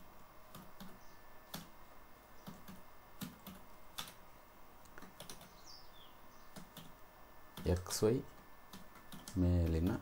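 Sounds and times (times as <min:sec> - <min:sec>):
keyboard keystrokes: 0:02.4 - 0:04.2, 0:04.9 - 0:05.5, 0:06.5 - 0:06.9, 0:08.7 - 0:10.0.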